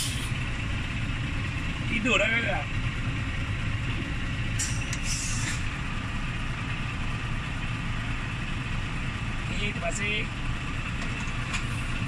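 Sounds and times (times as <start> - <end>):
brief air hiss: 0.0 - 0.3, 4.6 - 5.7
truck diesel engine running: 0.0 - 12.0.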